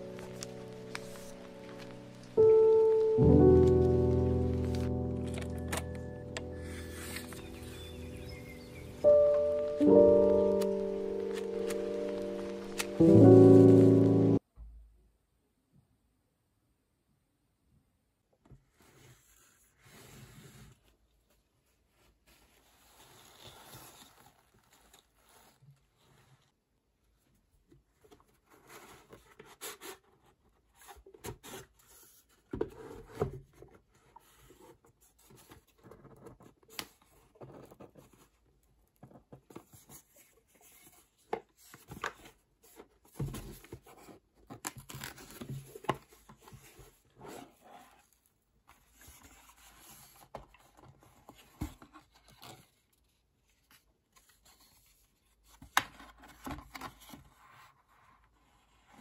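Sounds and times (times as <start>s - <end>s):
cardboard box rustling and scraping: 44.8s - 48.2s.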